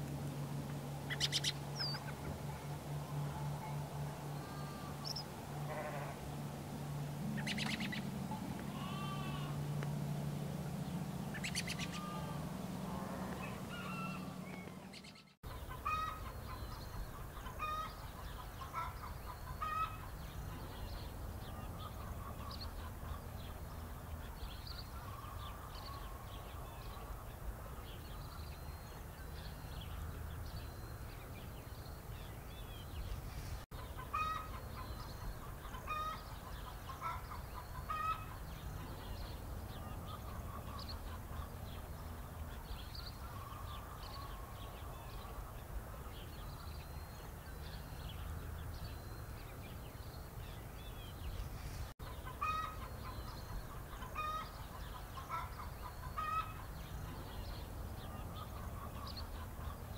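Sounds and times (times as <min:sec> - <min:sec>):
steady low hum: 0:00.0 - 0:33.6
chickens clucking: 0:00.8 - 0:06.2, 0:07.2 - 0:23.7, 0:33.7 - 0:46.3, 0:52.0 - 0:59.9.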